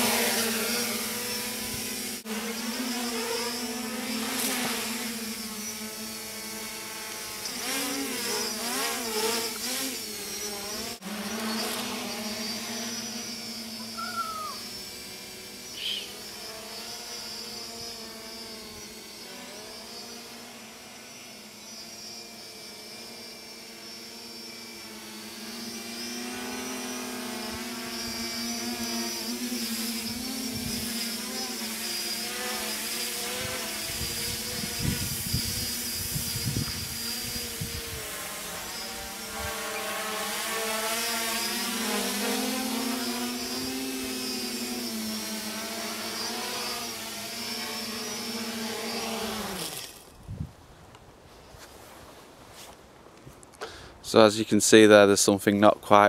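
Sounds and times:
drone motors buzzing hum: 0:00.0 - 0:51.6
wind noise gusts: 0:33.9 - 0:38.1, 0:50.2 - 0:50.6.

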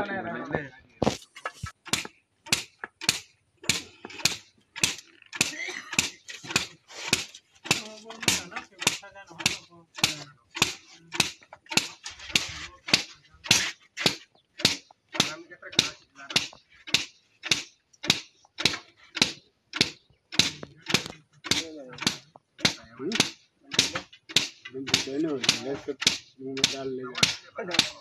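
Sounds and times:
sticks slapping on fibre: 0:01.0 - 0:15.3.

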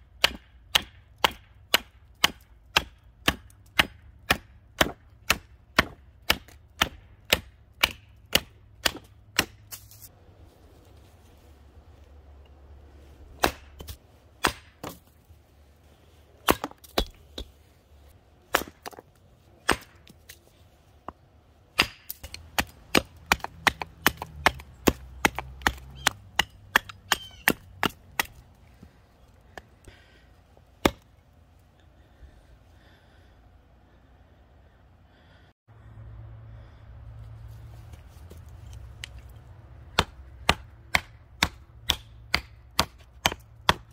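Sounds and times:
hatchet chopping wood: 0:00.0 - 0:10.0, 0:13.3 - 0:15.2, 0:16.4 - 0:17.6, 0:18.5 - 0:20.4, 0:21.0 - 0:28.9, 0:30.8 - 0:31.1, 0:39.9 - 0:43.9.

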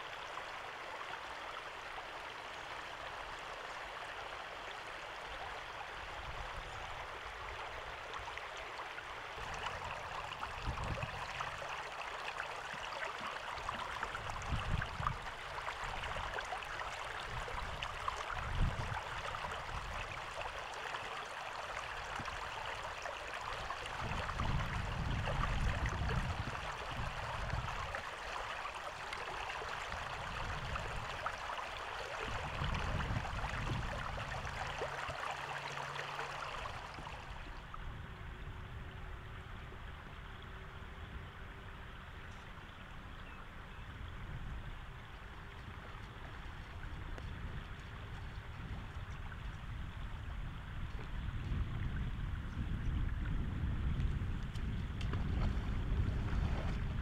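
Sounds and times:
floodwater rushing: 0:00.0 - 0:37.8.

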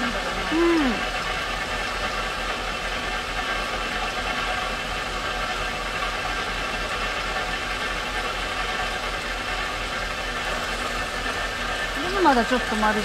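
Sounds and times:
polishing machine motor whirring: 0:00.0 - 0:01.3.

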